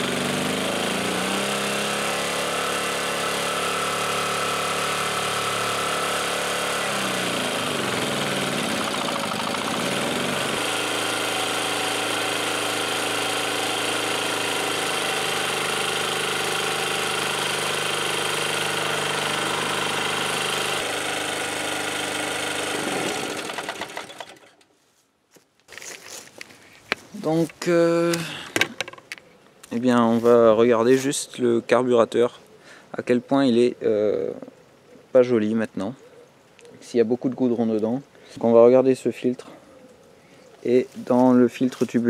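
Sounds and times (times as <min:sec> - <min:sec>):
small generator engine running: 0:00.0 - 0:24.6.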